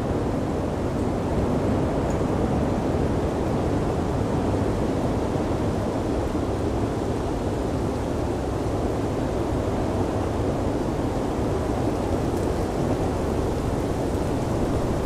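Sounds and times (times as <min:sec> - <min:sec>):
blizzard wind rushing: 0:08.9 - 0:15.0.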